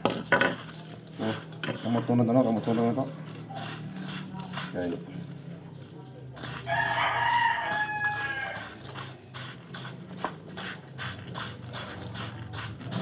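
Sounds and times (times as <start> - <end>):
hands kneading meat squishing: 0.0 - 13.0
rooster crowing: 6.5 - 8.8.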